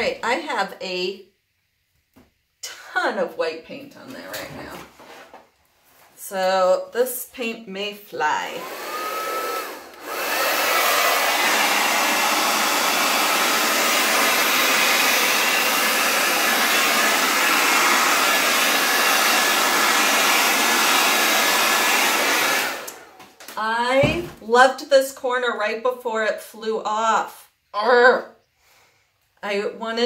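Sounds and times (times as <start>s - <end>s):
hair dryer running: 8.4s - 23.7s.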